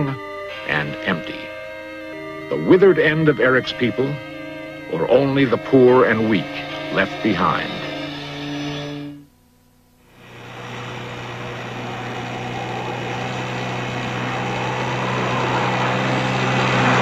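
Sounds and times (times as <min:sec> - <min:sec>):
held musical tone: 0:00.0 - 0:09.4, 0:10.0 - 0:17.0
outboard motor humming: 0:10.1 - 0:17.0.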